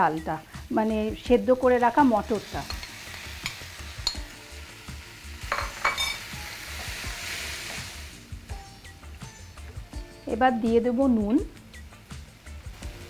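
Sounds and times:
frying sizzle: 0.0s - 13.0s.

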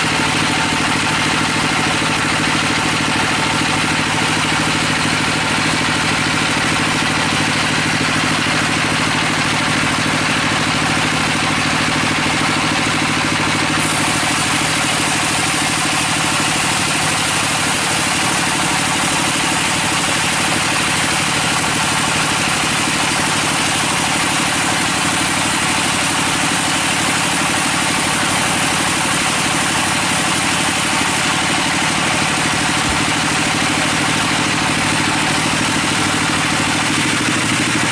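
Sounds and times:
band saw running: 0.0s - 37.9s
hiss of sawing wood: 13.7s - 19.3s.

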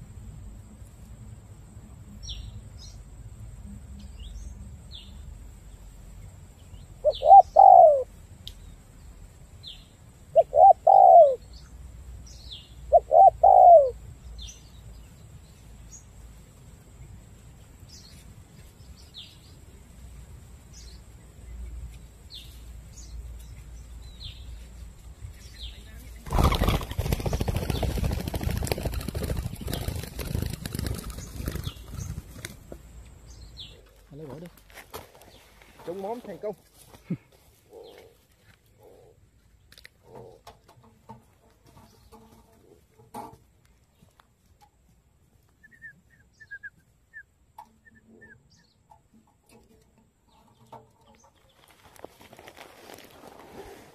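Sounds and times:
dove cooing: 7.0s - 8.1s, 10.3s - 11.4s, 12.9s - 14.0s
loud rough rustling: 51.4s - 53.9s.

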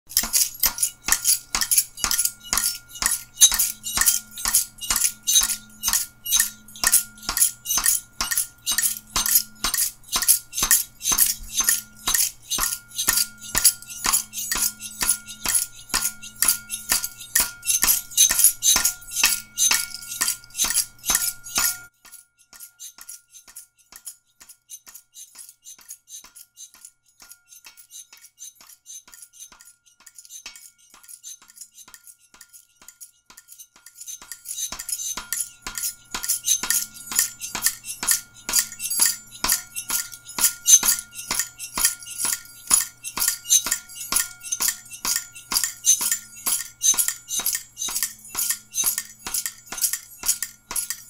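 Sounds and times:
ticking electronic percussion: 0.1s - 51.0s.

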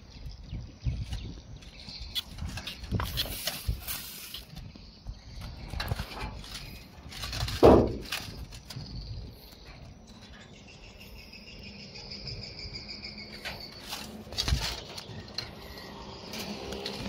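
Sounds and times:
insects chirping: 0.0s - 17.0s
loud thump: 7.6s - 8.0s.

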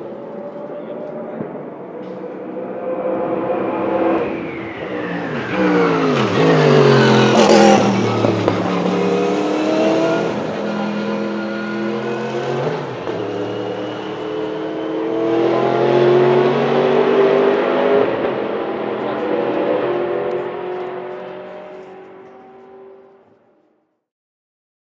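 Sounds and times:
race car engine shifting gears: 3.2s - 22.7s.

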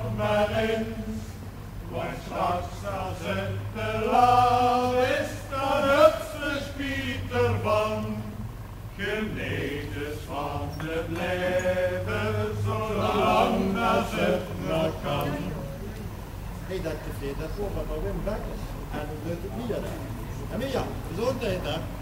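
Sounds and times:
voices chanting: 0.0s - 15.9s
low steady hum: 0.0s - 22.0s.

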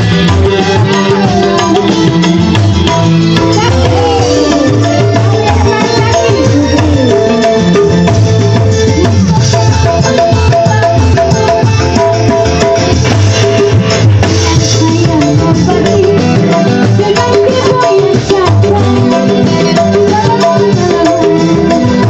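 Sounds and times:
hand drums beating: 0.0s - 22.0s
loud live stage music: 0.0s - 22.0s
shaker percussion: 0.0s - 22.0s.

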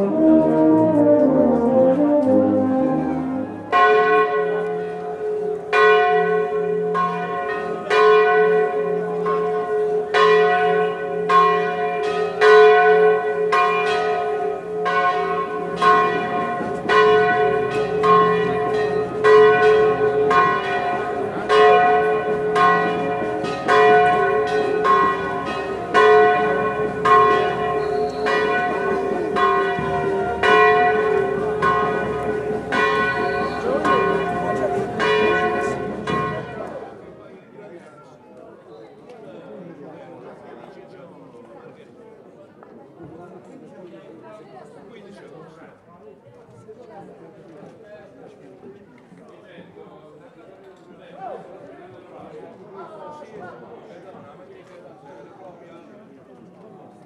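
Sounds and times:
brass band playing: 0.0s - 4.2s, 28.6s - 36.7s
church bells ringing: 0.0s - 37.0s.

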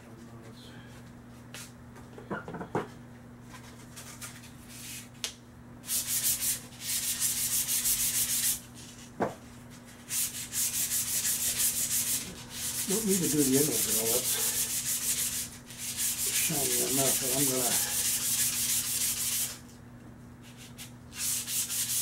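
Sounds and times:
sandpaper scratching metal: 5.9s - 8.6s, 10.0s - 19.6s, 20.5s - 22.0s.

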